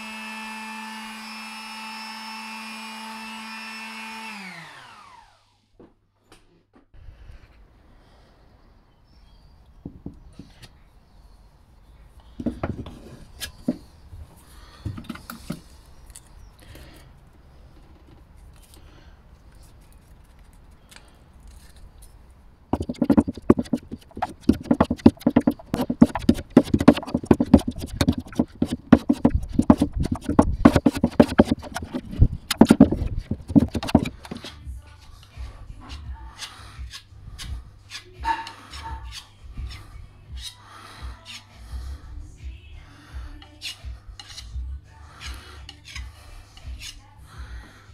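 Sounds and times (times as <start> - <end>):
knocks and scrapes scooping filler: 22.8 - 34.6
spreader scraping filler on board: 22.8 - 34.6.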